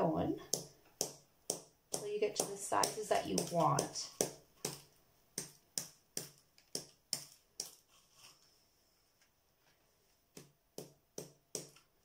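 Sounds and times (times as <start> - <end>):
hammer tapping glass beads: 0.4 - 7.8.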